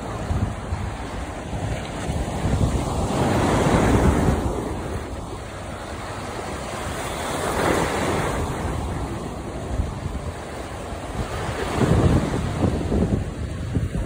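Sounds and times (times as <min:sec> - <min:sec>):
sea waves breaking: 0:00.0 - 0:14.0
wind on microphone: 0:00.0 - 0:14.0.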